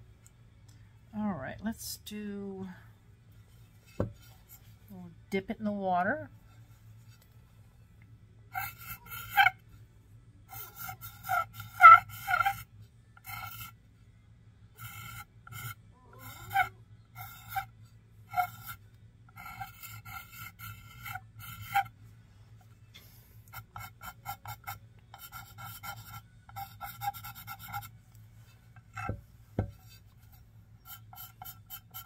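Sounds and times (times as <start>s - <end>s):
pencil scratching on clay plate: 8.5s - 9.6s, 10.5s - 13.8s, 14.8s - 22.0s, 23.5s - 32.0s.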